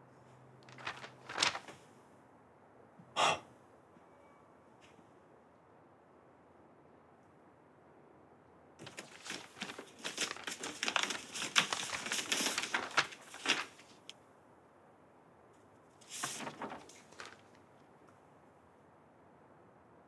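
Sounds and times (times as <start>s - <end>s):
paper rustling: 0.6s - 1.9s, 8.8s - 14.1s, 16.0s - 17.6s.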